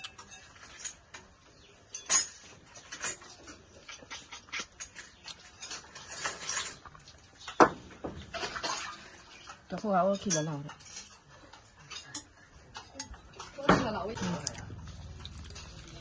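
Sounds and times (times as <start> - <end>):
slurping snails from shells: 2.3 - 7.6, 14.2 - 16.0.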